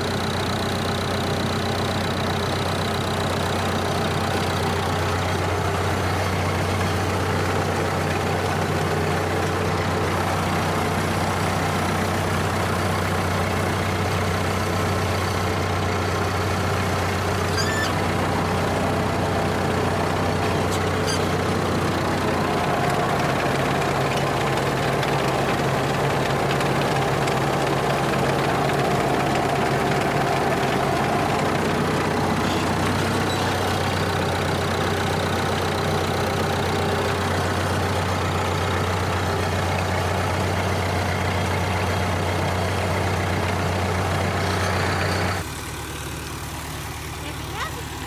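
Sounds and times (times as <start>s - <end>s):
tractor diesel engine running: 0.0s - 48.0s.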